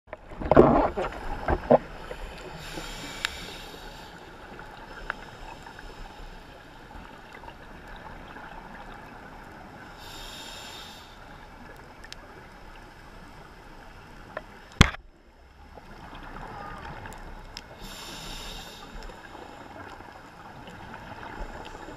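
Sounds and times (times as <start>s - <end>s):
muffled underwater noise: 16.0s - 21.9s.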